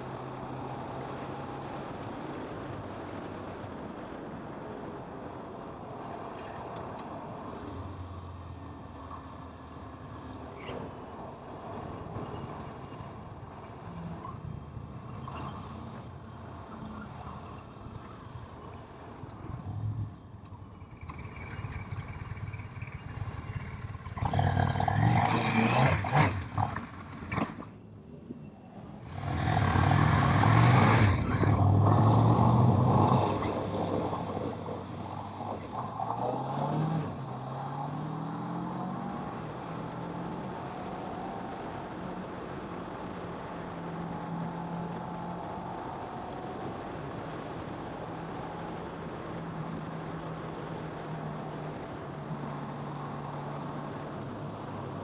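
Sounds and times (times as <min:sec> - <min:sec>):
motorcycle engine humming: 0:19.3 - 0:24.9.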